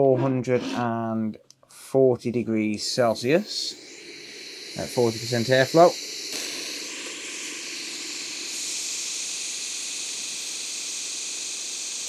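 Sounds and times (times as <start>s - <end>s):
hot air blower hissing: 2.6s - 12.0s.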